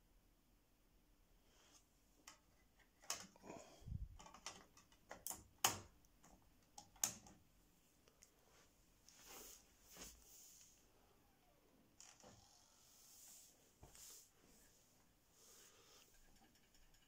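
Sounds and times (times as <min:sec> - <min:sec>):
small plastic clicks and knocks: 0:02.2 - 0:03.4, 0:04.1 - 0:07.4
soft rustle: 0:07.8 - 0:11.2, 0:12.1 - 0:16.3.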